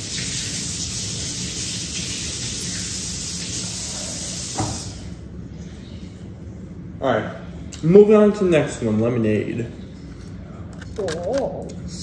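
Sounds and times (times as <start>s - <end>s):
tap water running into sink: 0.0s - 5.0s.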